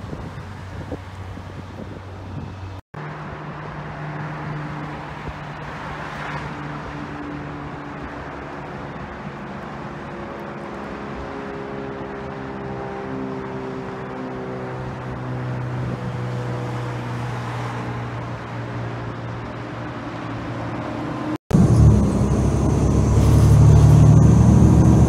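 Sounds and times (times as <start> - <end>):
wind noise on microphone: 0.0 - 5.8, 13.7 - 25.0
broad rushing noise: 0.0 - 25.0
propeller aircraft engine drone: 0.0 - 25.0.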